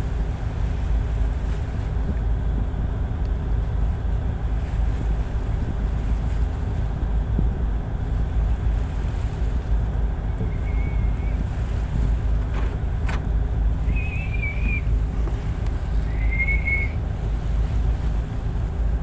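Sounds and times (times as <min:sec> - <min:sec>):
diesel engine rumbling: 0:00.0 - 0:19.0
wind on microphone: 0:00.0 - 0:19.0
short high whistles: 0:10.5 - 0:11.4, 0:13.9 - 0:14.9, 0:16.1 - 0:17.0.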